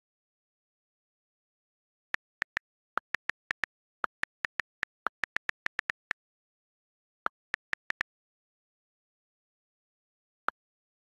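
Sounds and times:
on-screen keyboard key clicks: 0:02.2 - 0:06.2, 0:07.3 - 0:08.0.

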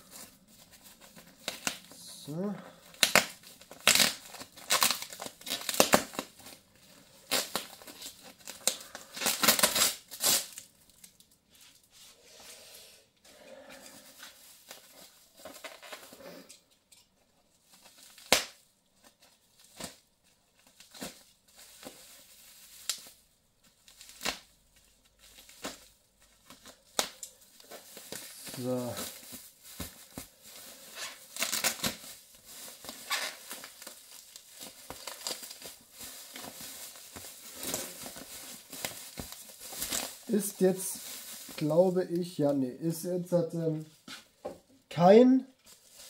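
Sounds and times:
packaging rustling: 0:02.8 - 0:11.9, 0:13.9 - 0:16.2, 0:17.6 - 0:44.4, 0:45.6 - 0:46.0
cardboard tape ripping: 0:02.9 - 0:06.6, 0:07.2 - 0:10.7, 0:18.1 - 0:18.6, 0:23.9 - 0:24.5, 0:30.9 - 0:41.8.

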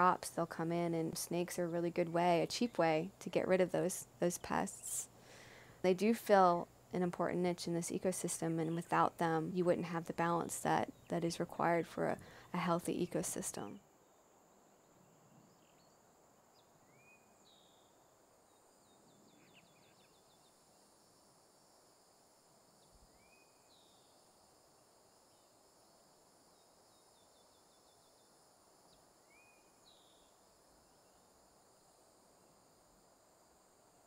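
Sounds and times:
songbird singing: 0:00.0 - 0:20.6, 0:22.8 - 0:24.2, 0:25.3 - 0:30.4
high drone of insects: 0:00.0 - 0:34.0.

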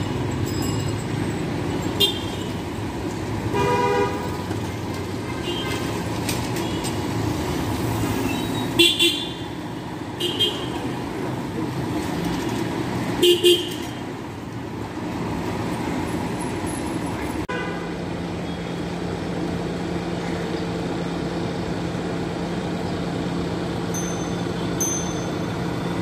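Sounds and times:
steady engine hum: 0:00.0 - 0:26.0
street traffic noise: 0:00.0 - 0:26.0
vehicle horn toots: 0:02.0 - 0:02.5, 0:03.5 - 0:04.4, 0:13.2 - 0:13.8.

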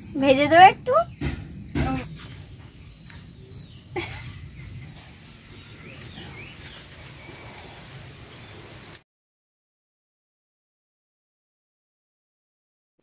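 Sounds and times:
birds chirping: 0:00.0 - 0:09.0.

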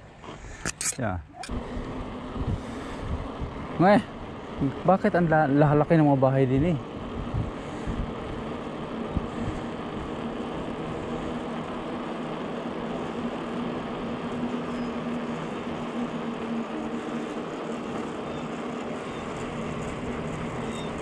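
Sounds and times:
faint steady hum: 0:00.0 - 0:21.0
wind on microphone: 0:01.5 - 0:03.8, 0:06.6 - 0:11.4
bicycle tyres rolling on trail: 0:01.5 - 0:21.0.

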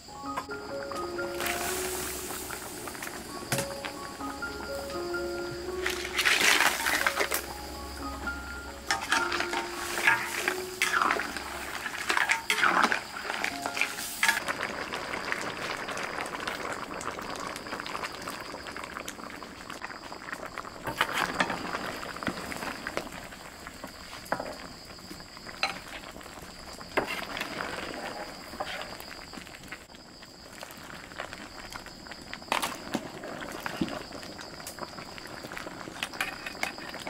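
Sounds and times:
curry bubbling in a wok: 0:14.2 - 0:37.0.

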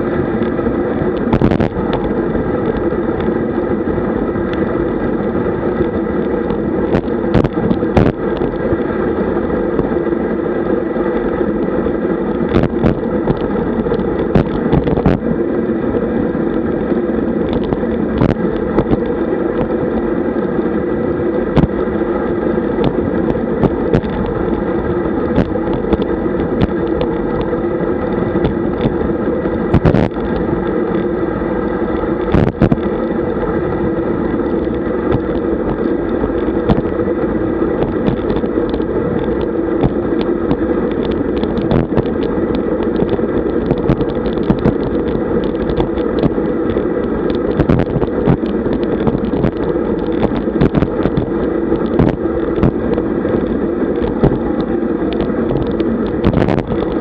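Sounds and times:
wind and road noise: 0:00.0 - 0:57.0.

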